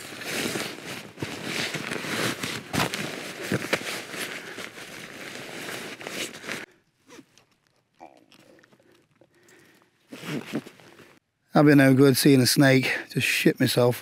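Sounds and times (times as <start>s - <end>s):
nylon gear rustling: 0.0s - 7.7s, 8.3s - 11.2s.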